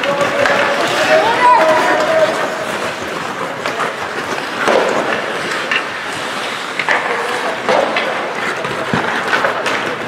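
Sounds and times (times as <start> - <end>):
hockey sticks clicking: 0.0 - 10.0
skates hissing on ice: 0.6 - 10.0
short shouts: 0.7 - 2.5.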